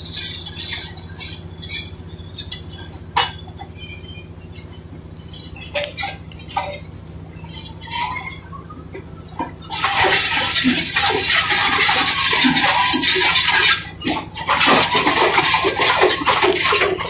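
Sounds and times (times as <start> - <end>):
bulldozer diesel engine: 0.0 - 17.0
debris crunching: 0.0 - 17.0
steel tracks clattering: 0.0 - 17.0.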